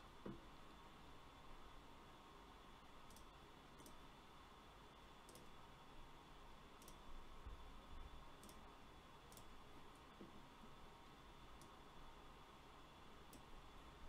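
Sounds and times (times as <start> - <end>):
low steady hiss: 0.0 - 14.0
computer mouse clicks: 3.0 - 4.0, 5.2 - 5.6, 6.8 - 7.0, 8.4 - 8.7, 9.3 - 10.4, 11.6 - 11.8, 13.3 - 13.6.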